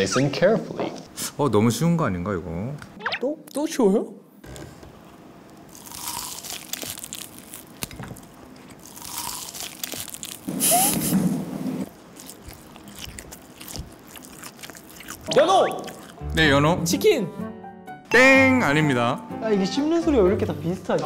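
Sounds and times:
crunchy biting and chewing: 5.5 - 11.2, 11.9 - 16.3.

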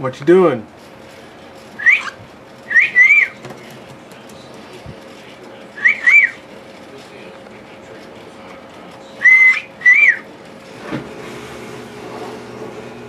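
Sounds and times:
cockatiel whistling: 1.8 - 3.4, 5.8 - 6.4, 9.2 - 10.3.

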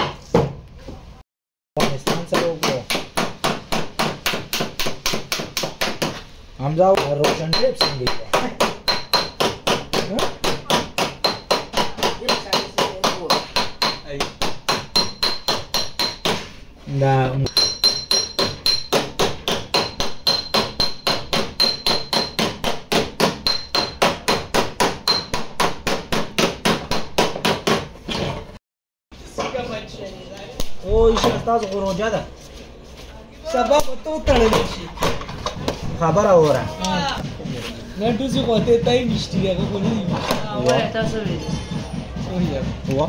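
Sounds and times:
small hammer tapping on metal: 17.5 - 22.5.

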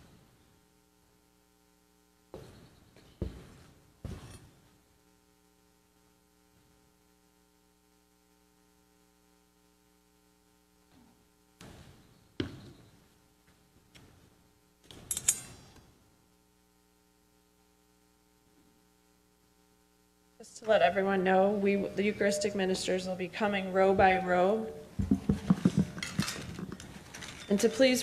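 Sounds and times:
low electrical hum: 0.0 - 28.0
knocks and clinks: 25.0 - 27.9.

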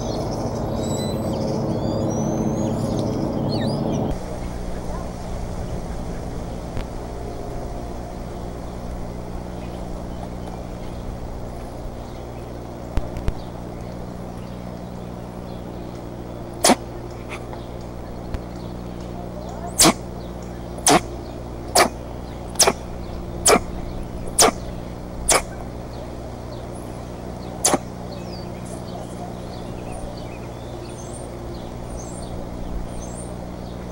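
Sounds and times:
low steady hum: 0.0 - 33.9
small birds chirping: 0.0 - 33.9
eagle sneezing: 16.6 - 17.5, 19.7 - 20.1, 20.8 - 25.7, 27.6 - 28.0.

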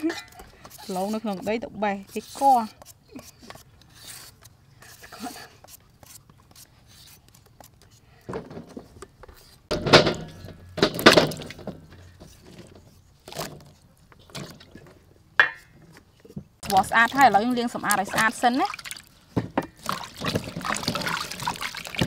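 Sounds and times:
vegetables splashing into water: 16.6 - 19.1, 19.8 - 22.0.

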